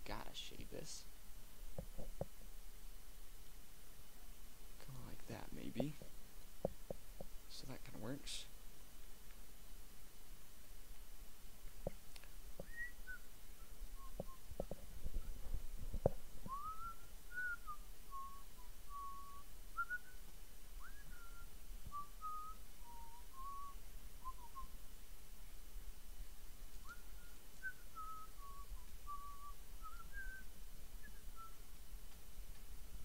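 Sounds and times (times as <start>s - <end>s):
person whistling a tune: 12.6s - 13.2s, 16.5s - 20.2s, 20.8s - 24.7s, 26.8s - 30.4s.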